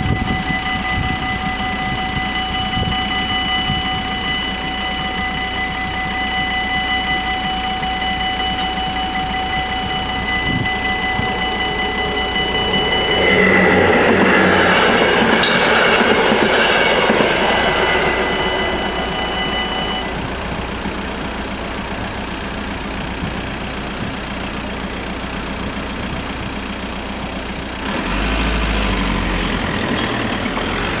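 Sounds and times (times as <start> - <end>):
steady high tone: 0.0 - 26.4
train rumbling: 0.0 - 31.0
loud low rumble: 8.8 - 26.6.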